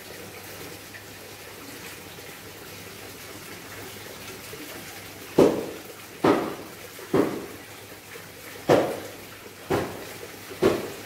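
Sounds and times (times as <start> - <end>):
waterfall trickling into pond: 0.0 - 11.0
loud knock: 5.4 - 7.5, 8.7 - 9.0, 9.7 - 10.0, 10.6 - 10.9.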